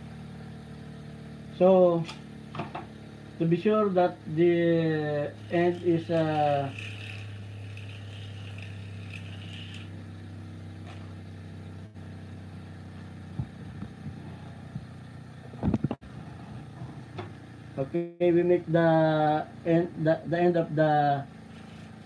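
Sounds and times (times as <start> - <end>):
bench grinder motor hum: 4.2 - 12.4, 21.4 - 22.0
sandpaper scraping hiss: 5.4 - 10.0, 21.5 - 22.0.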